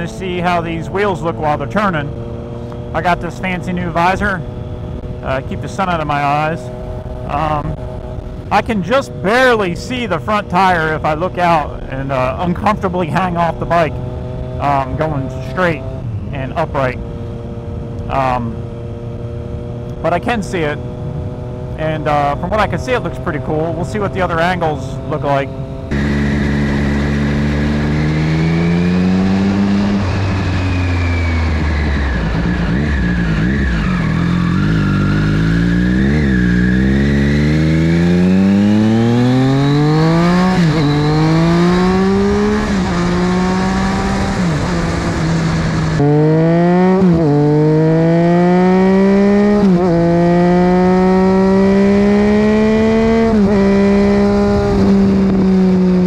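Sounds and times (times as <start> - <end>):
motorcycle engine accelerating: 0.0 - 56.0
tyre noise on road: 25.1 - 56.0
wind noise: 52.9 - 56.0.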